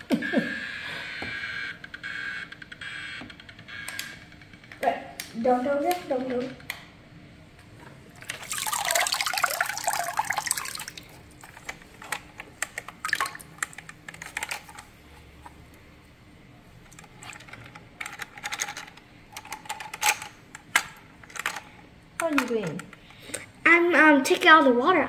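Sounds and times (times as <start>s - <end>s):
water dripping: 8.2s - 11.1s, 13.0s - 13.7s
water splashing in plastic tub: 8.2s - 11.1s, 13.0s - 13.6s.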